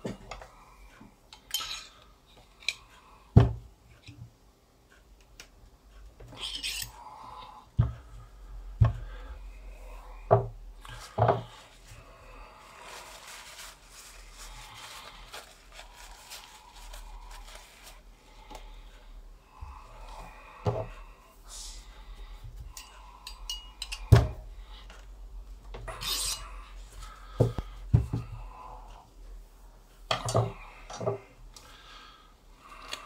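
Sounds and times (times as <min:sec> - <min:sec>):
rubbing against paper towels: 0:12.7 - 0:18.0.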